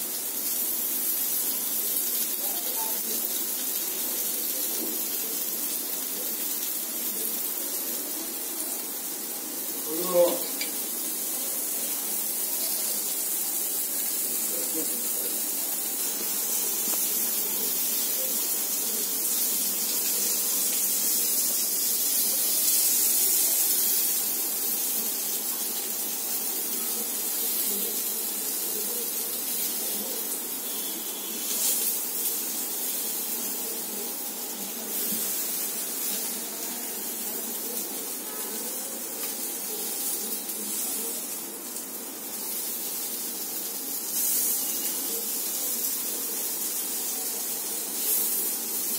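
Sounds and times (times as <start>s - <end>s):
skewers sizzling on a griddle: 0.0s - 48.9s.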